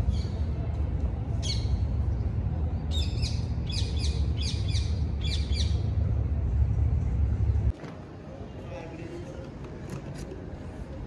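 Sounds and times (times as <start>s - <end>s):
steady low rumble: 0.0s - 9.6s
bird chirping: 2.9s - 5.9s.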